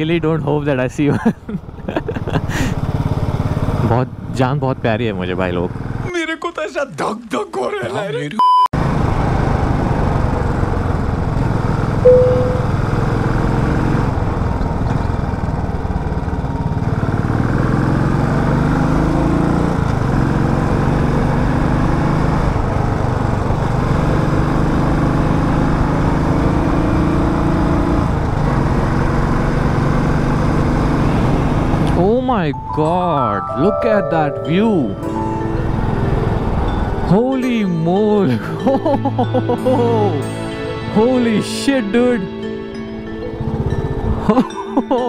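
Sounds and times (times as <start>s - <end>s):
motorcycle engine revving: 2.5s - 4.4s, 8.8s - 32.0s
brief single tone: 12.0s - 13.0s.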